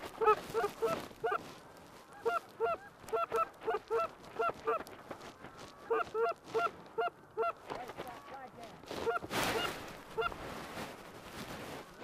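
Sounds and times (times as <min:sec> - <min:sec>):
goose honking: 0:02.1 - 0:04.8, 0:05.8 - 0:08.4.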